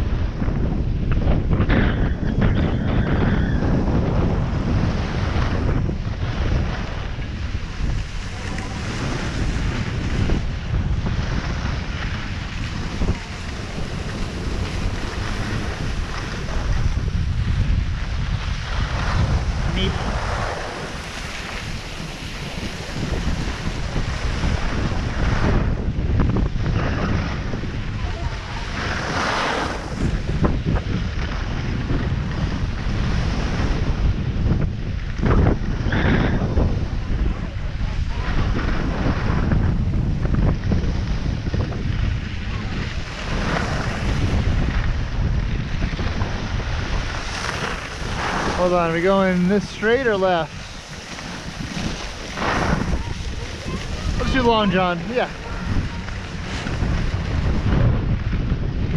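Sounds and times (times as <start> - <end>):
wind buffeting microphone: 0.0 - 58.9
skis sliding on snow: 3.6 - 25.7, 26.4 - 58.9.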